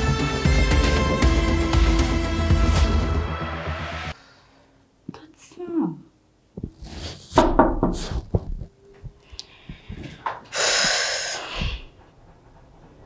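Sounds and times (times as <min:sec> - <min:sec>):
breathy rush of air: 0:09.2 - 0:12.2.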